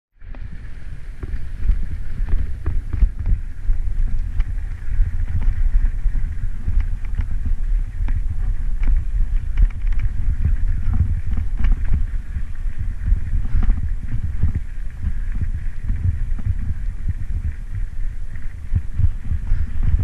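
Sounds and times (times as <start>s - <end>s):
bicycle rattling over bumps: 0.2s - 20.0s
wind buffeting microphone: 0.2s - 20.0s.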